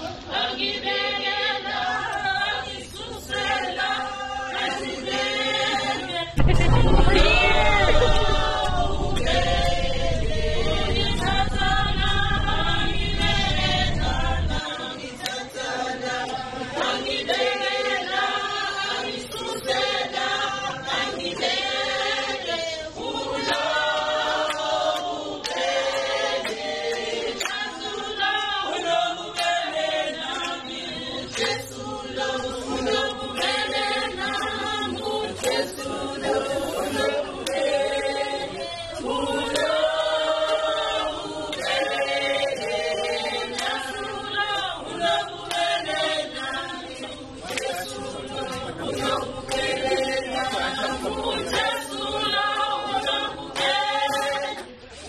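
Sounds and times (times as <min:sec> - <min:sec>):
a cappella choir singing: 0:00.0 - 0:55.0
low rumble: 0:06.4 - 0:14.6.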